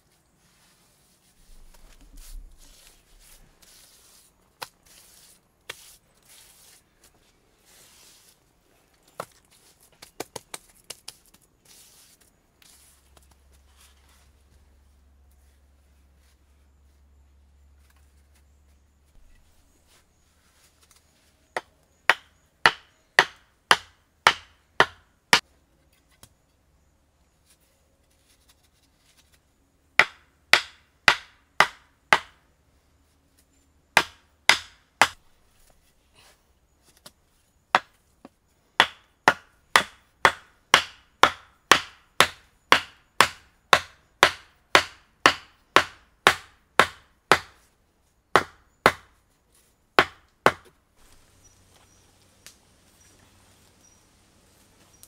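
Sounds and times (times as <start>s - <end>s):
wooden stakes pounded: 9.1s - 11.4s, 21.6s - 25.5s, 30.0s - 32.4s, 34.0s - 35.2s, 37.7s - 47.7s, 48.4s - 49.2s, 50.0s - 51.2s.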